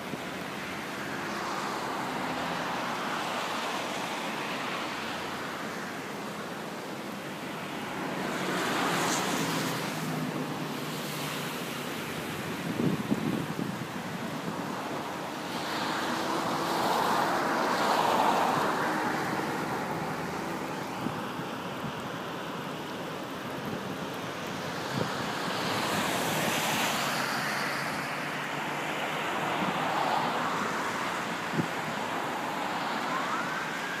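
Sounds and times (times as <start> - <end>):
fast stream water rushing: 0.0 - 34.0
road traffic passing: 0.0 - 34.0
wind buffeting microphone: 12.3 - 15.0
siren rising: 32.4 - 34.0.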